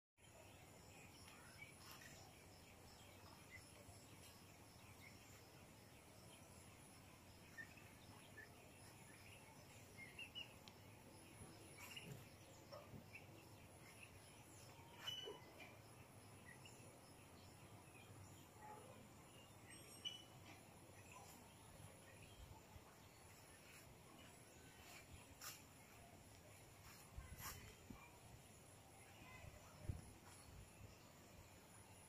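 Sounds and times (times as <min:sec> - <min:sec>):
bird chirps: 0:00.2 - 0:32.0.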